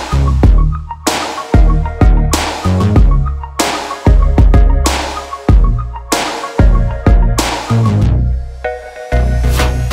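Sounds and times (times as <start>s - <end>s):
music with deep bass beat: 0.0s - 9.9s.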